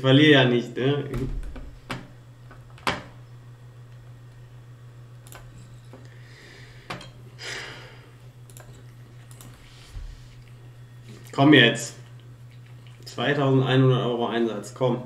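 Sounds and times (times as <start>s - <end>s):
steady low hum: 0.0s - 15.0s
computer mouse clicks: 5.2s - 5.6s, 8.4s - 9.6s.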